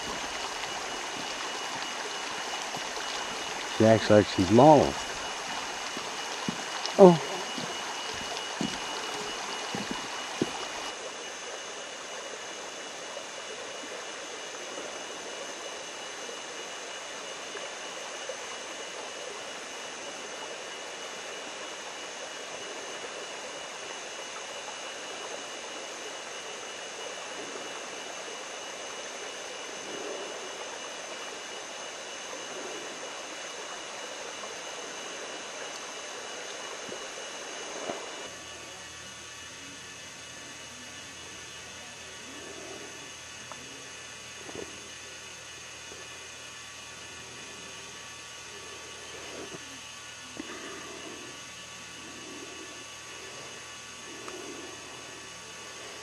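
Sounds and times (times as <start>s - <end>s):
creek water flowing: 0.0s - 38.4s.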